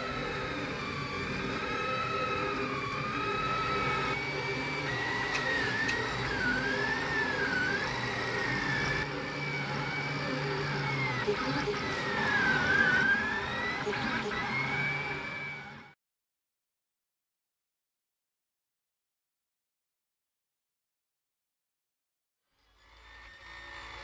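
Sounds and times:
stepper motors whining: 0:00.0 - 0:16.0, 0:22.6 - 0:24.0.

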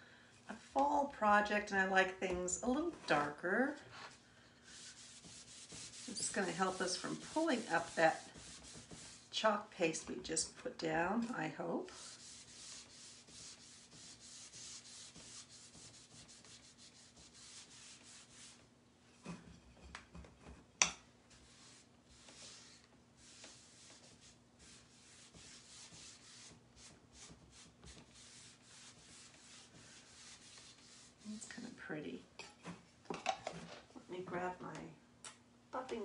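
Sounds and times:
wax brush scrubbing wood: 0:02.4 - 0:10.5, 0:11.2 - 0:18.7, 0:21.3 - 0:31.6.

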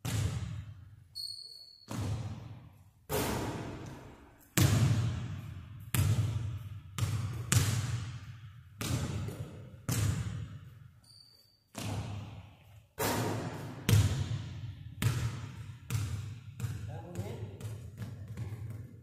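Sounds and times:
basketball bouncing on wood floor: 0:00.0 - 0:00.8, 0:01.8 - 0:10.8, 0:11.7 - 0:12.4, 0:13.0 - 0:19.0.

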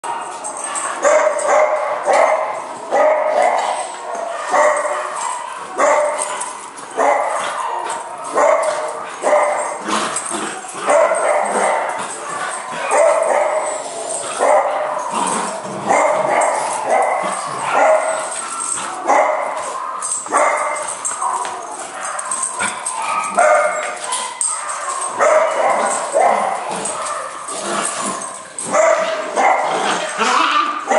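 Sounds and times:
puppies barking and yipping: 0:00.0 - 0:30.9.

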